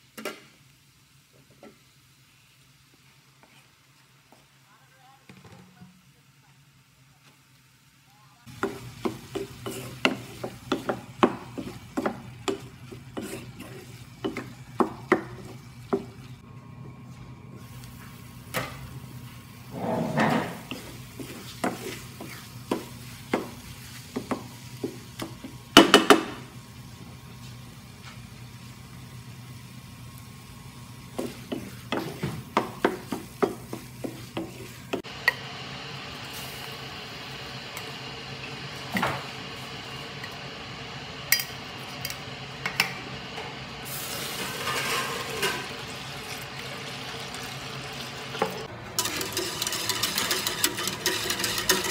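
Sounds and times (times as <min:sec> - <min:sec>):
steady sizzle: 0:00.0 - 0:05.3, 0:06.0 - 0:51.9
spoon knocking and scraping pot: 0:08.5 - 0:16.1, 0:19.8 - 0:26.3, 0:31.1 - 0:35.4, 0:48.4 - 0:51.9.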